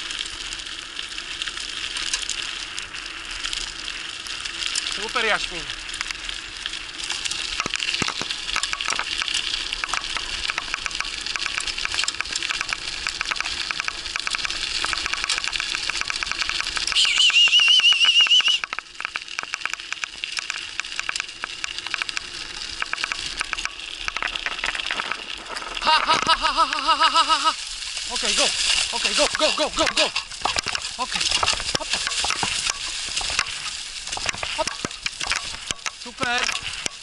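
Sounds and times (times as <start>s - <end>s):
bike tyres crunching on gravel: 0.0s - 37.0s
high wavering squeal: 16.9s - 18.6s.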